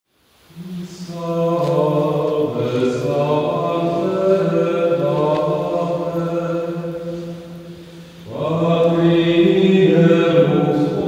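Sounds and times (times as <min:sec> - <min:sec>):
men singing liturgical chant: 0:00.6 - 0:07.6, 0:08.2 - 0:11.0.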